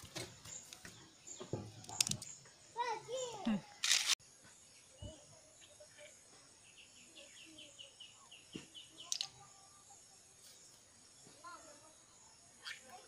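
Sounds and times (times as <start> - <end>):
bird chirping: 0.0 - 3.8, 4.6 - 11.4
snail shells clicking: 1.9 - 2.4, 9.1 - 9.3.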